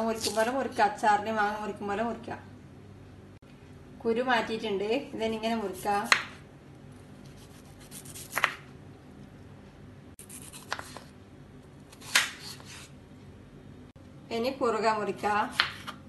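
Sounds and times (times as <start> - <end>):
knife slicing vegetable: 0.1 - 0.8, 7.2 - 8.7, 10.2 - 11.1, 11.9 - 13.0, 15.2 - 16.0.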